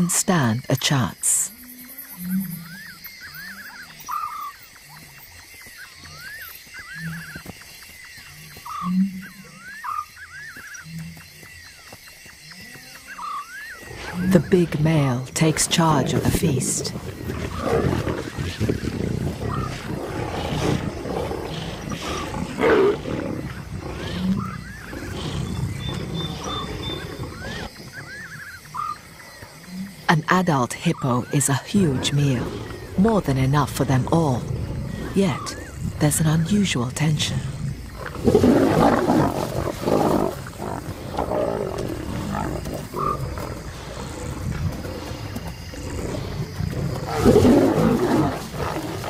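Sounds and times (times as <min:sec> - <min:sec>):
lions growling: 0:12.6 - 0:30.1, 0:30.9 - 0:49.0
lion snarling: 0:13.9 - 0:30.1, 0:37.0 - 0:49.0.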